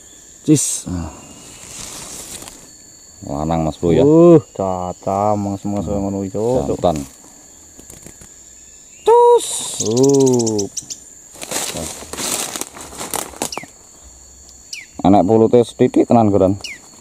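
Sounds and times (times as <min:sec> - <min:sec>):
insects buzzing: 0:00.0 - 0:17.0
bird wings flapping: 0:07.7 - 0:08.3.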